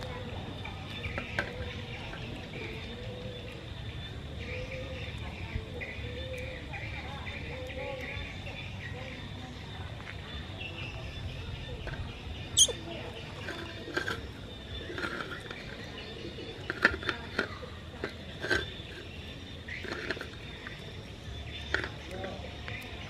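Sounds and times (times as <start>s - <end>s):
high chirps and squeaks: 11.2s - 22.1s.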